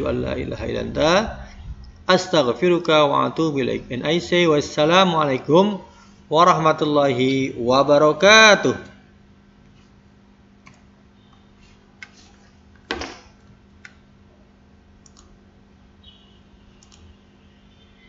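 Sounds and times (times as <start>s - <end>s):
low steady hum: 0.0s - 18.0s
computer mouse clicks: 15.0s - 15.3s, 16.8s - 17.2s.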